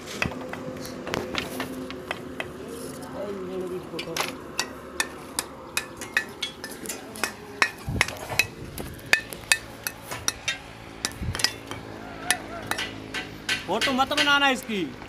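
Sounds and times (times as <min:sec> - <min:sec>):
hammer clinking on brick: 0:04.0 - 0:14.4.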